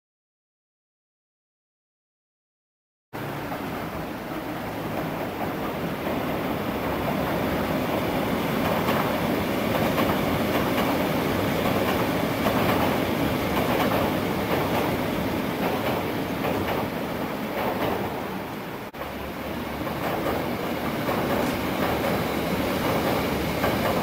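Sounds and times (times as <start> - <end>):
train wheels clattering on bridge: 3.2 - 24.0.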